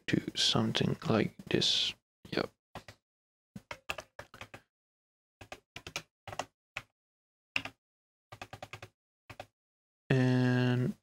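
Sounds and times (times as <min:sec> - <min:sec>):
computer keyboard keystrokes: 0:03.6 - 0:04.6, 0:05.4 - 0:06.9, 0:07.6 - 0:07.8.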